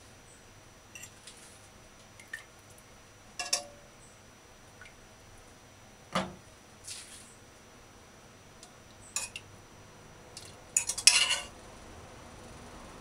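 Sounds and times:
fork clinking on pot and plate: 3.4 - 3.8, 9.2 - 9.4, 10.8 - 11.5
utensils clattering: 9.2 - 9.4, 10.4 - 11.5.

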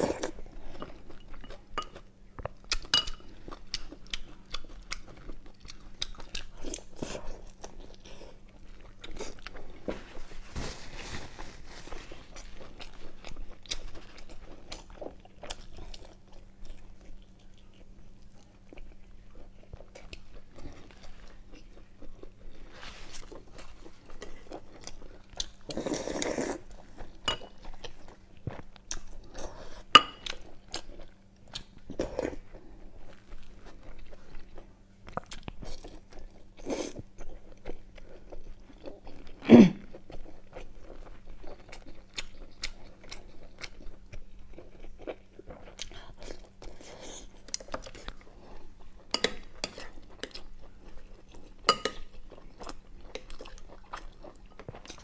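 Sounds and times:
chewing and wet mouth sounds: 0.0 - 10.0, 11.9 - 55.0
slurp of soup from spoon: 25.7 - 26.7.

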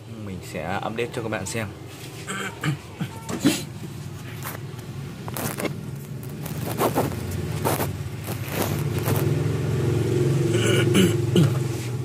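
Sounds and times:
vehicle engine running: 3.9 - 12.0.

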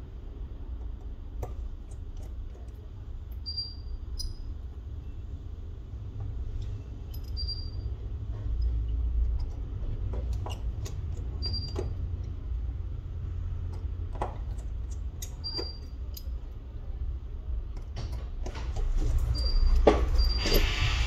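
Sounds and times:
small tools clicking and tapping: 13.6 - 16.6.

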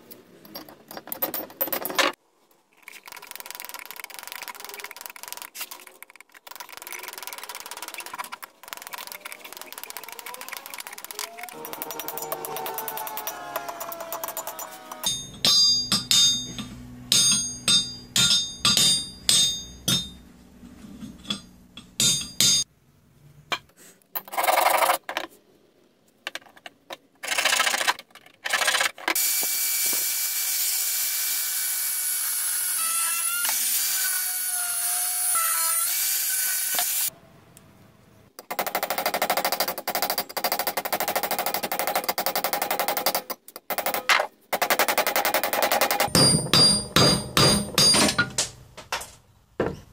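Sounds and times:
angle grinder on metal: 11.5 - 15.2
hammer striking metal on anvil: 14.4 - 20.2, 21.2 - 22.7, 46.1 - 48.5.

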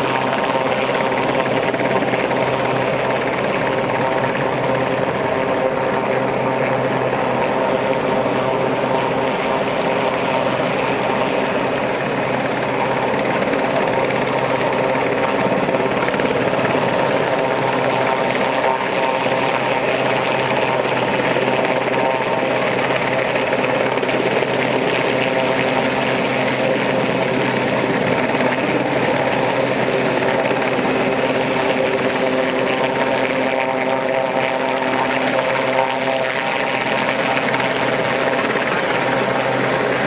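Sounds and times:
helicopter hovering drone: 0.0 - 40.0.

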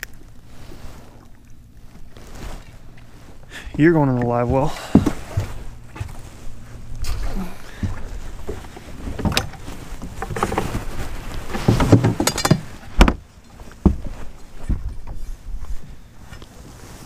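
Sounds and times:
steady low rumble: 0.0 - 17.0
knocks and clunks on boat: 3.7 - 15.4.

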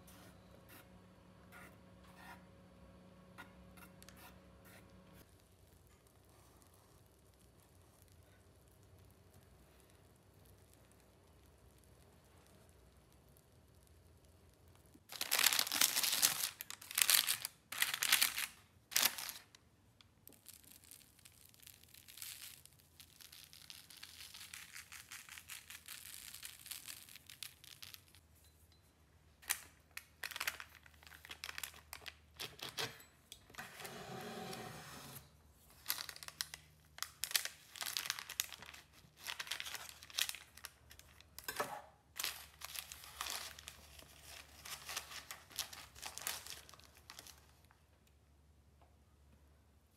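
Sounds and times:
baking paper crinkling: 15.1 - 19.7, 20.3 - 28.3, 29.4 - 32.9, 35.5 - 41.5, 42.1 - 47.8.

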